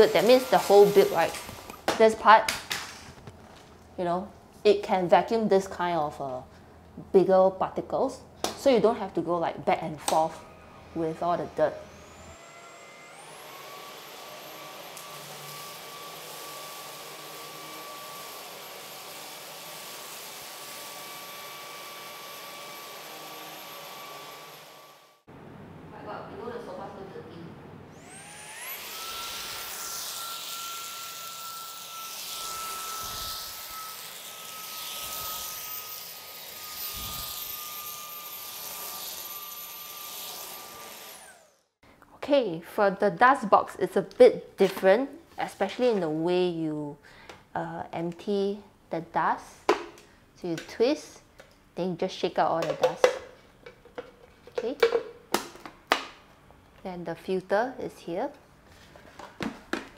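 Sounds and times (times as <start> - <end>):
vacuum motor whining: 0.0 - 1.9, 10.4 - 19.2, 27.9 - 41.6.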